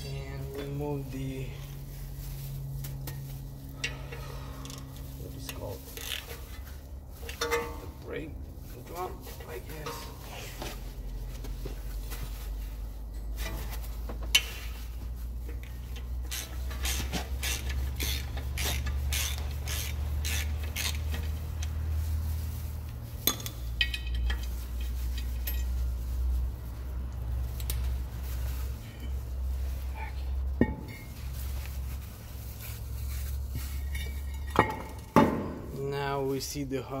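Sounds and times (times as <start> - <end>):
steady low hum: 0.0 - 36.9
metal clinking: 23.2 - 26.0, 33.6 - 35.7.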